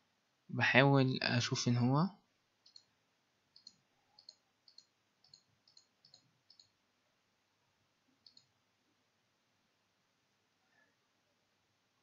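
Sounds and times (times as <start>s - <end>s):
computer mouse clicking: 2.6s - 2.9s, 3.5s - 6.8s, 8.2s - 8.5s.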